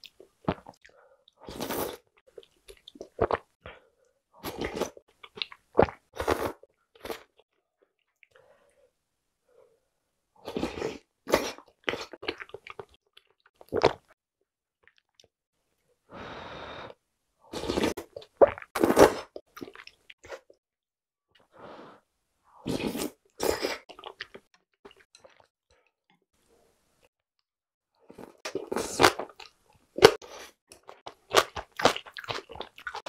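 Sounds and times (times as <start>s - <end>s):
slurping noodle soup: 1.4s - 2.1s, 16.2s - 20.5s, 22.6s - 24.2s
chewing: 30.8s - 33.0s.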